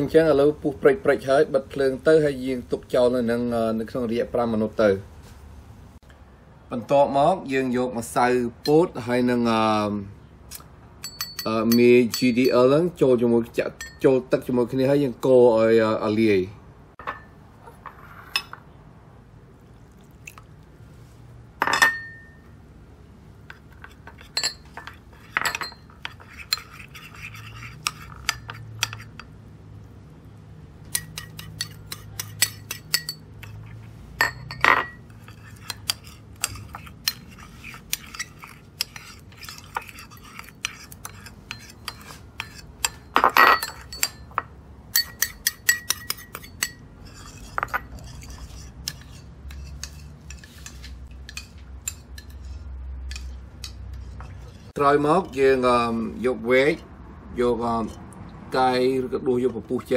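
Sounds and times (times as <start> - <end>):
metal spoon clinking on porcelain bowl: 11.0 - 12.7, 13.8 - 14.1, 21.6 - 22.4, 23.8 - 29.3, 30.9 - 52.4.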